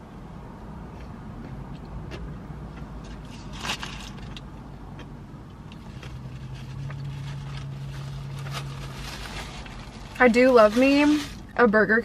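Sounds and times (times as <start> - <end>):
car engine hum: 0.0 - 12.0
paper wrapper rustling: 6.5 - 11.4.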